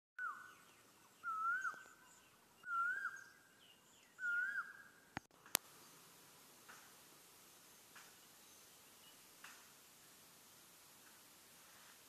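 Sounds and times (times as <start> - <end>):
bird whistling call: 0.2 - 5.0.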